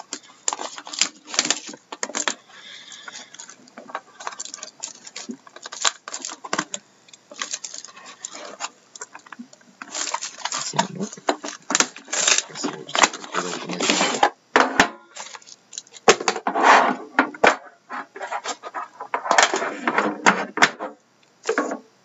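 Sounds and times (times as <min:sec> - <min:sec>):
plastic wrap crinkling and tearing: 0:00.0 - 0:14.2, 0:15.1 - 0:16.1.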